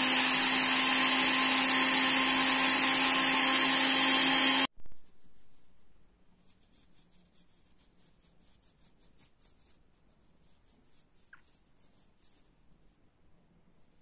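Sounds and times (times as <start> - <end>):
towel rubbing on ring: 5.0 - 13.0.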